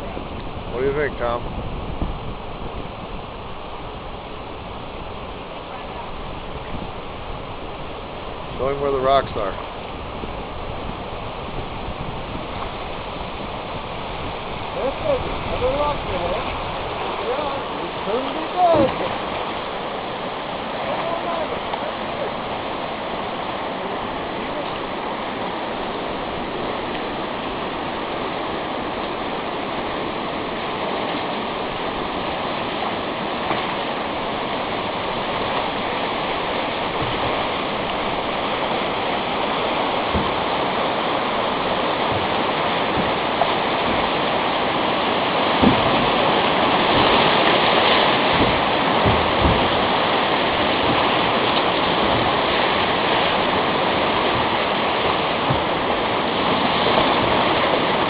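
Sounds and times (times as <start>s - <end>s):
dull low thumps: 0.0s - 8.6s, 45.5s - 47.4s, 48.2s - 52.5s, 54.2s - 56.2s
river rapids rushing: 0.0s - 58.0s.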